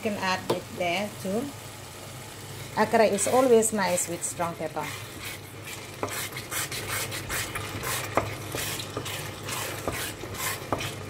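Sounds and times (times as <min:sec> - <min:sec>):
spatula scraping a pot: 0:03.1 - 0:11.0.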